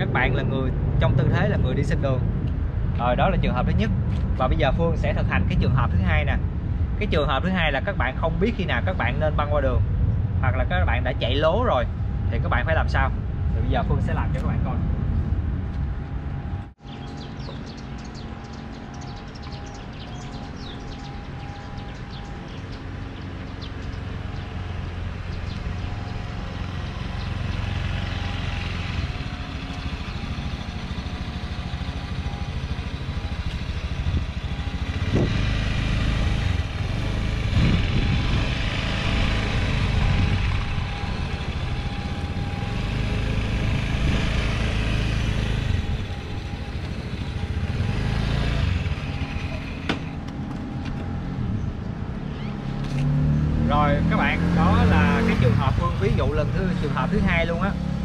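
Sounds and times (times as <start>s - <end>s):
road rumble: 0.0s - 58.0s
motorbike engine running: 16.9s - 51.9s.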